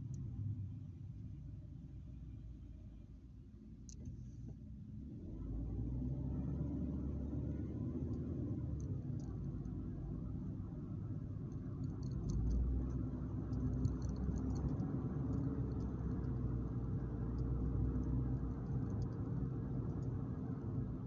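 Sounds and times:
car engine and tyres rumbling: 0.0s - 21.0s
faint clicks: 11.5s - 20.2s.

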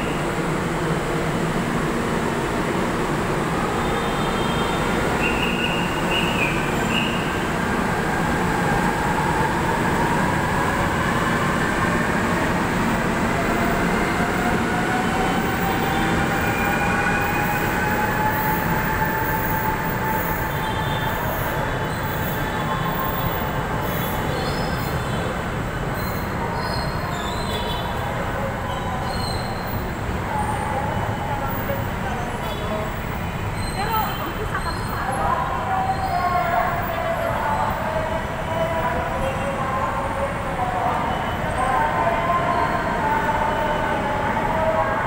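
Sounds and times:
train wheel squeals: 15.1s - 25.1s, 28.6s - 30.7s, 33.4s - 35.0s.

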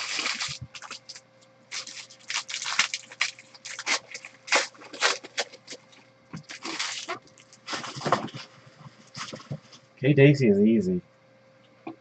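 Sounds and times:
foil wrapper crinkling and tearing: 0.0s - 9.6s.

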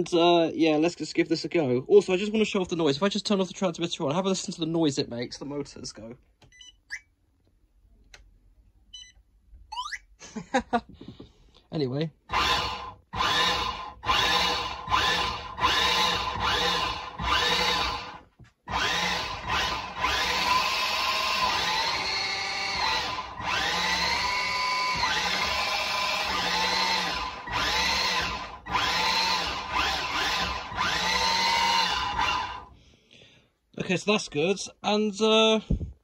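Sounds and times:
electric motors whining: 12.3s - 32.7s.

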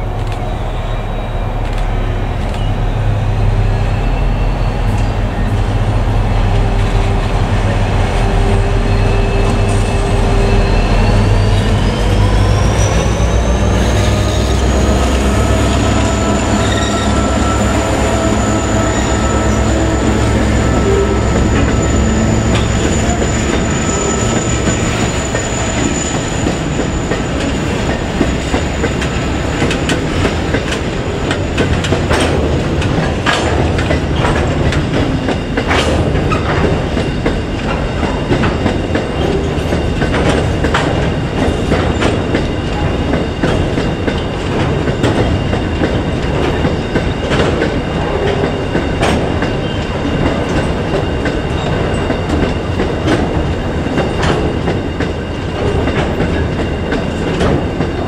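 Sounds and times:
freight train wheels rumbling: 0.0s - 58.0s
high wheel squeal: 7.8s - 31.6s
wheels clacking over rail joints: 14.5s - 58.0s.

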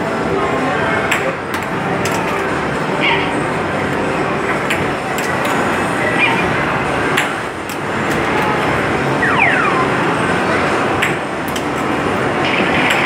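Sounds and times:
arcade machines noise: 0.0s - 13.0s
falling electronic tones: 9.0s - 10.5s
electronic pings: 9.2s - 10.2s.

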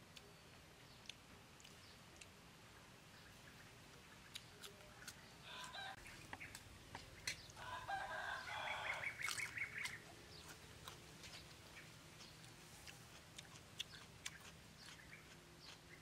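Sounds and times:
person chewing: 1.0s - 2.4s, 4.2s - 7.7s, 8.6s - 16.0s
chicken clucking: 4.3s - 16.0s.

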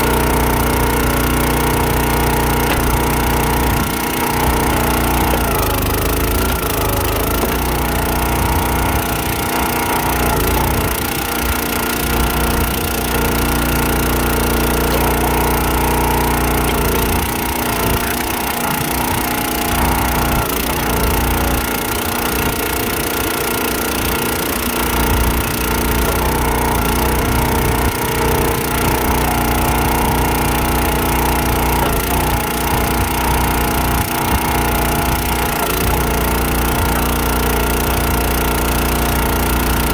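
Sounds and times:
small engine running: 0.0s - 39.9s
wood cracking: 0.1s - 21.7s.

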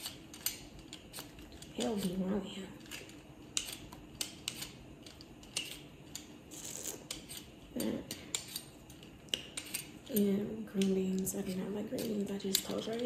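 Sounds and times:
knife cutting potatoes on board: 3.6s - 4.8s, 9.3s - 13.0s
knife scraping hiss: 6.5s - 7.5s.

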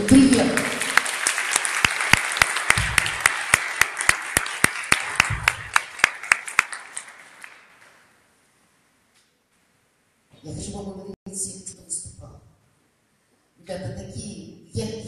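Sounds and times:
audience applauding: 0.0s - 8.0s
loud close single claps: 0.6s - 8.0s.

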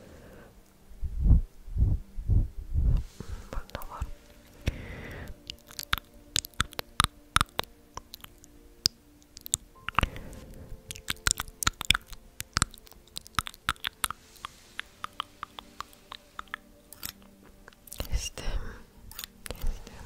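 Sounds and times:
breathy whoosh: 0.0s - 5.5s, 9.9s - 11.0s, 14.0s - 16.8s
crisp clicks and crackles: 3.6s - 18.5s, 19.1s - 20.0s.

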